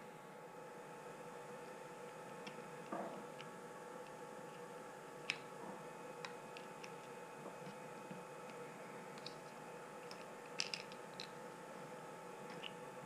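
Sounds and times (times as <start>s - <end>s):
faint hum: 0.0s - 13.0s
small plastic parts clicking: 9.2s - 9.4s, 10.0s - 11.4s.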